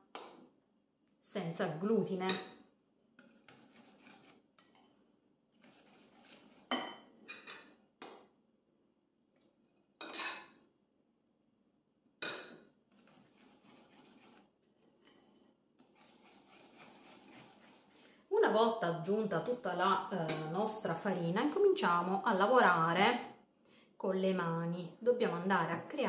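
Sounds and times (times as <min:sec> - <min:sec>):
whisk scraping in ceramic bowl: 0:03.2 - 0:06.9, 0:12.9 - 0:18.1.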